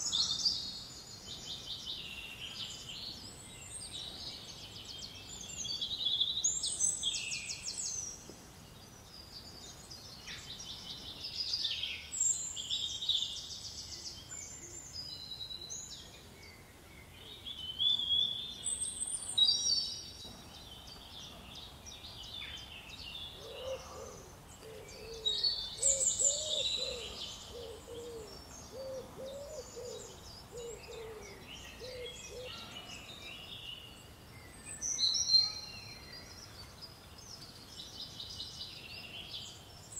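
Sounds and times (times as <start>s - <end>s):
songbirds twittering: 0.0s - 39.9s
low cooing or hooting: 23.4s - 32.5s.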